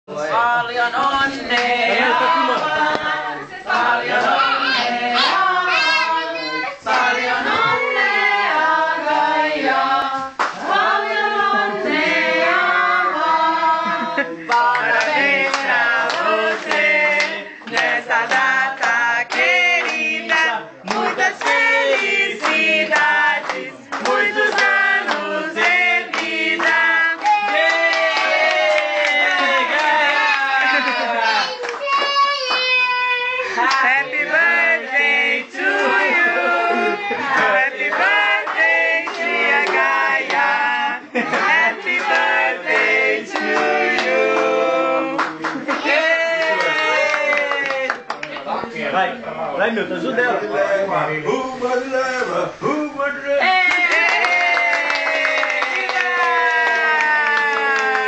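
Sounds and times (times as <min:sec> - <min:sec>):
group singing: 0:00.1 - 0:31.8, 0:33.4 - 0:47.9
hands clapping: 0:10.4 - 0:10.6, 0:14.5 - 0:32.8, 0:45.2 - 0:48.6, 0:53.7 - 0:58.0.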